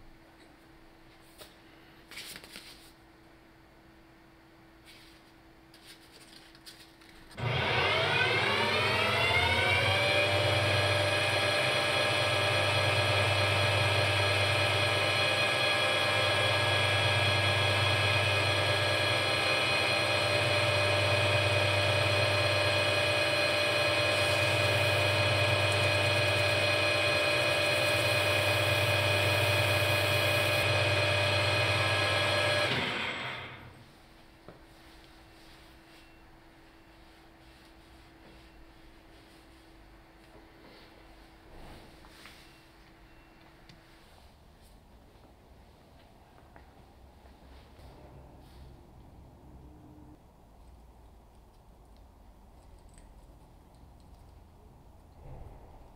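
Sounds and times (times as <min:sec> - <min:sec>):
metal lathe motor whine: 0:07.4 - 0:33.7.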